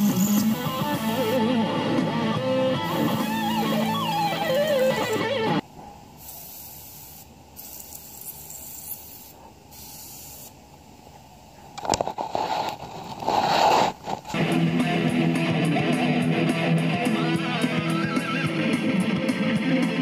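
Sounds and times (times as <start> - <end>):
airbrush spraying hiss: 0.0 - 1.6, 2.7 - 5.4, 6.2 - 10.6.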